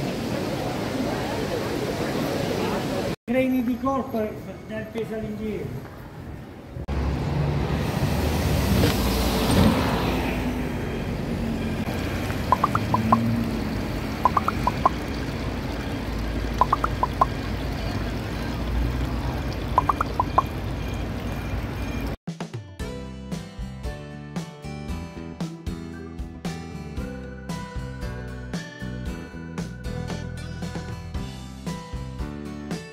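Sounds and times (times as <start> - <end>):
traffic noise: 0.0 - 22.2
water splashing into fountain: 11.8 - 22.2
quick high chirps: 12.5 - 13.2, 14.2 - 15.0, 16.6 - 17.3, 19.8 - 20.5.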